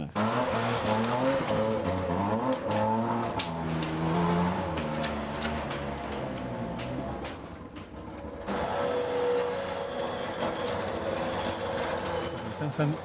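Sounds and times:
truck engine running: 0.0s - 13.0s.

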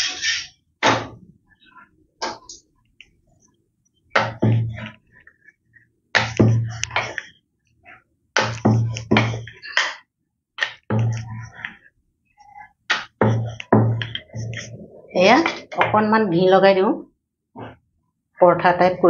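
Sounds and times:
rolling pin rolling dough: 6.1s - 9.9s, 10.6s - 16.1s.

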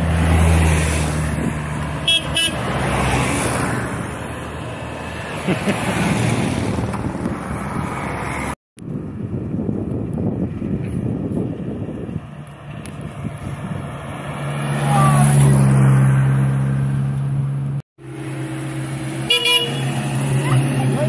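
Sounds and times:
vehicles going by: 0.0s - 21.0s
horn toots: 2.0s - 2.7s, 19.2s - 21.0s.

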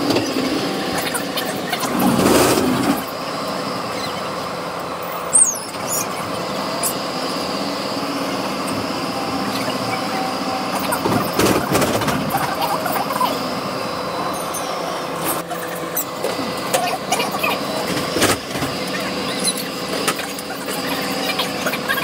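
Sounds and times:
steel wheels squealing on track: 18.8s - 22.0s.

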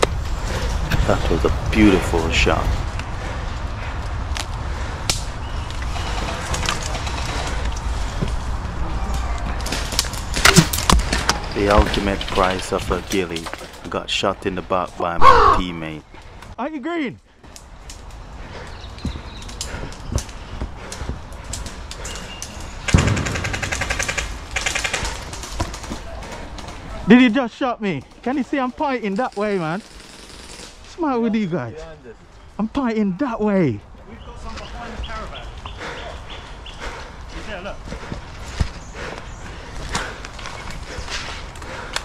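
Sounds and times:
airsoft gun full-auto burst: 29.8s - 30.8s.

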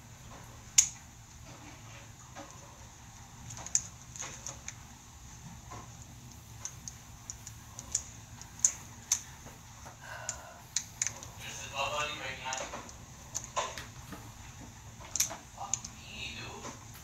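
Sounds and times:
plastic toy pieces clicking: 6.6s - 9.3s, 15.1s - 16.0s.

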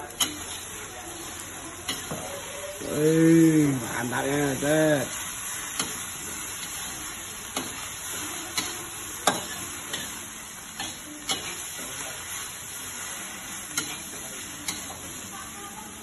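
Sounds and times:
food sizzling in a wok: 0.0s - 16.0s
spatula clinking on pan: 1.8s - 2.3s, 8.5s - 10.2s, 10.8s - 11.6s.

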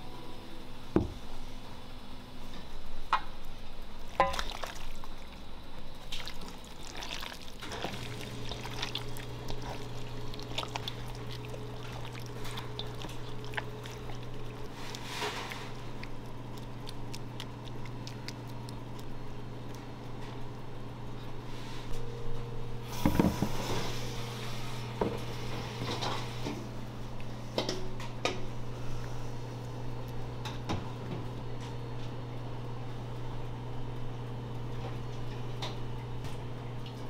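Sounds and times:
steady low hum: 0.0s - 37.0s
batter sloshing and squelching: 4.1s - 20.6s.

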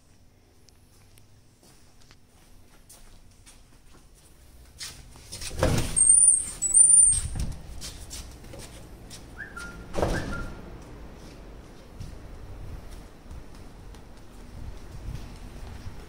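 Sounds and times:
door squeaking: 5.6s - 7.5s, 9.8s - 10.6s.

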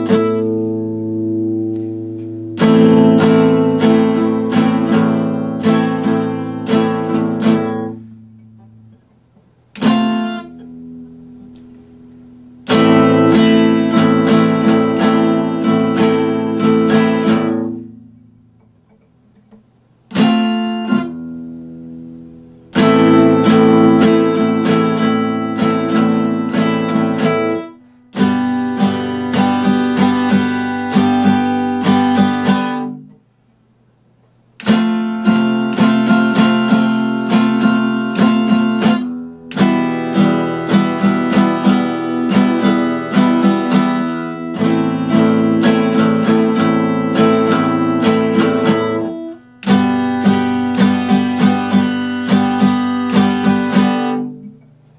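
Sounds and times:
acoustic guitar strumming chords: 0.0s - 54.9s.

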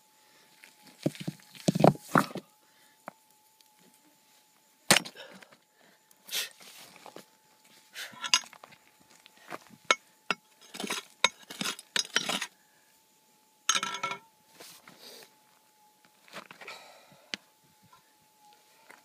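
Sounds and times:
pick clinking on rock: 8.2s - 8.6s, 9.9s - 12.5s, 13.7s - 14.2s
gravel scraping: 10.6s - 12.5s.

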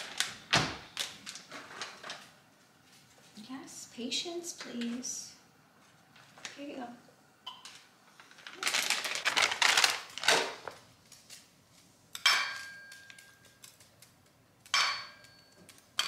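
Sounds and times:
food clattering into metal bowls: 12.2s - 16.0s.

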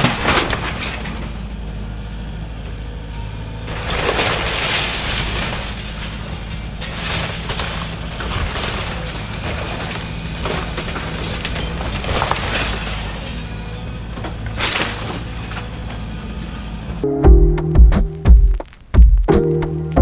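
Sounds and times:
wood cracking and splintering: 0.0s - 1.4s, 3.6s - 16.0s
debris crashing down: 0.0s - 1.6s, 3.6s - 16.2s
excavator diesel engine running: 0.0s - 18.5s.

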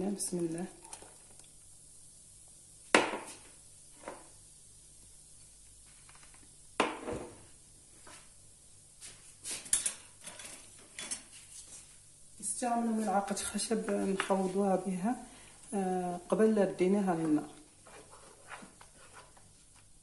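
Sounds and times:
objects knocking on countertop: 2.9s - 3.4s, 6.8s - 7.4s.

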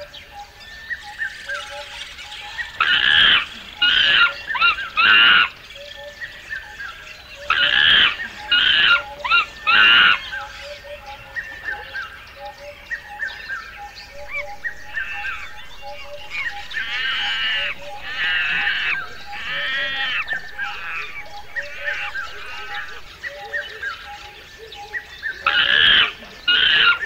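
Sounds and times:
small birds chirping: 0.0s - 27.0s
harsh animal calls: 14.2s - 23.4s.

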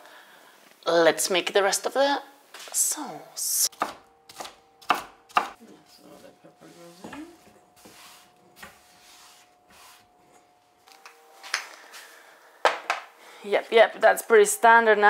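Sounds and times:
faint hum: 3.0s - 15.0s
knife striking wooden board: 3.7s - 5.6s
scraping on chopping board: 6.7s - 10.5s.

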